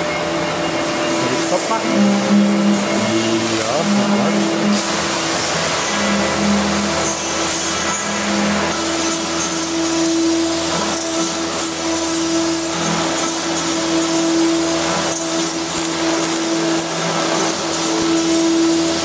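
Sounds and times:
drilling machine motor hum: 0:00.0 - 0:19.0
hiss of cutting plastic: 0:01.1 - 0:19.0.

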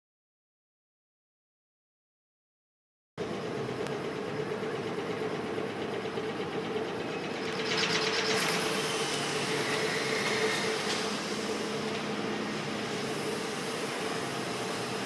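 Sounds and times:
machine hum: 0:03.2 - 0:15.0.

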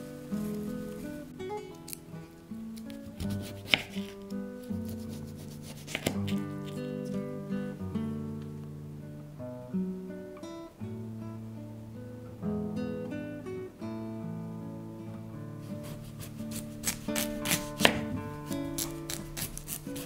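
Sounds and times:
plucked acoustic guitar music: 0:00.0 - 0:20.0
knife cutting on wooden board: 0:03.2 - 0:04.2, 0:04.8 - 0:06.8, 0:15.8 - 0:20.0.

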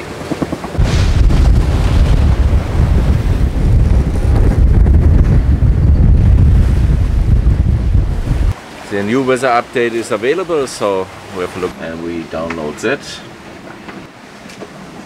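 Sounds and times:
wind buffeting microphone: 0:00.0 - 0:08.6.

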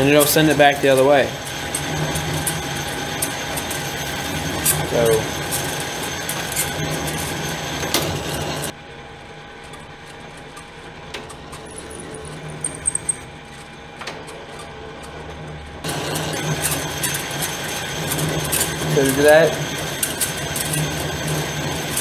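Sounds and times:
lathe motor and gear whir: 0:00.0 - 0:22.0.

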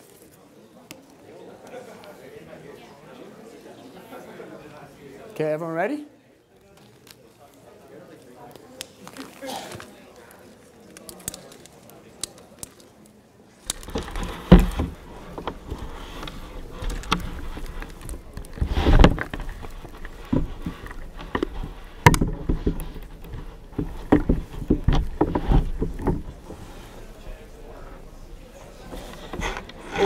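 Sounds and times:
plastic bottle knocking: 0:13.7 - 0:30.0.

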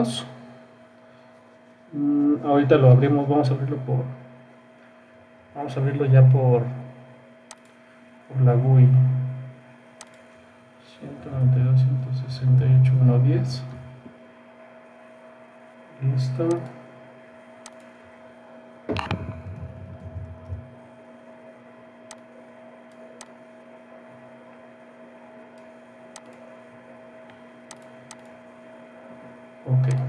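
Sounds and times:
steady electrical hum: 0:00.0 - 0:30.0
thump with low rumble: 0:18.9 - 0:20.8.

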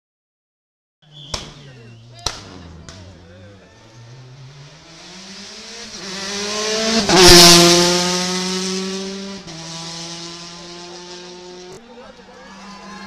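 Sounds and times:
rally car passing at speed: 0:01.4 - 0:11.8.

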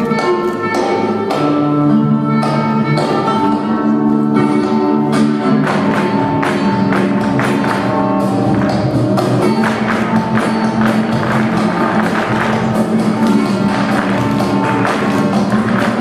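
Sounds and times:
flamenco music: 0:00.0 - 0:16.0
sharp percussive hits: 0:05.2 - 0:16.0.

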